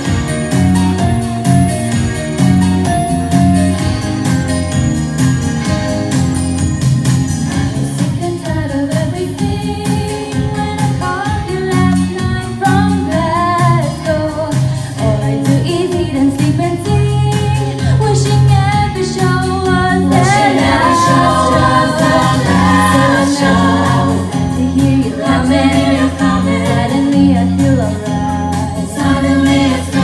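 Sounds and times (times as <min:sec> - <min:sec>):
bass and beat accompaniment: 0:00.0 - 0:30.0
group singing pop in harmony: 0:07.9 - 0:30.0.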